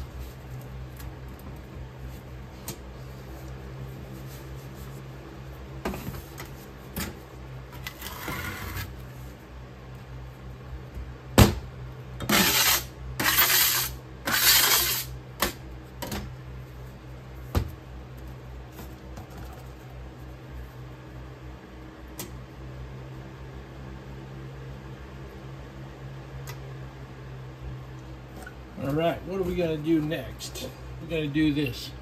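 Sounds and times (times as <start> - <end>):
plastic scraper scraping sand: 12.3 - 15.1.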